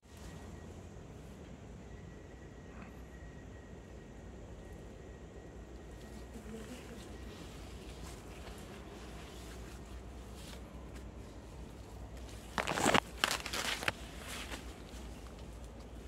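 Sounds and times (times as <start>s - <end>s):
rustling and crunching: 7.7s - 16.0s.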